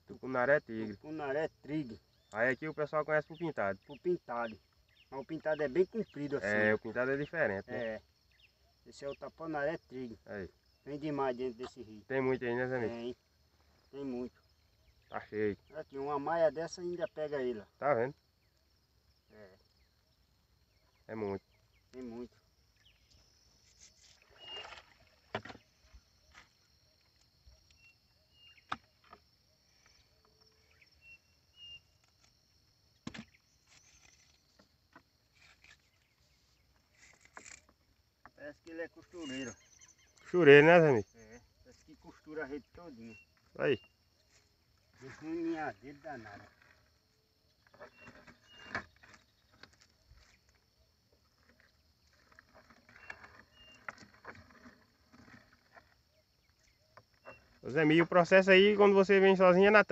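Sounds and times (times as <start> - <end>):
sharp knocks on wooden canoe: 33.0 - 33.4.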